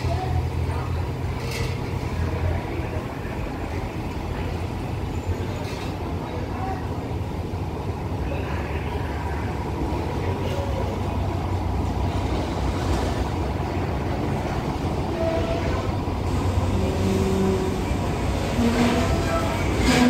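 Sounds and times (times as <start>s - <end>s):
diesel train engine rumble: 0.0s - 20.0s.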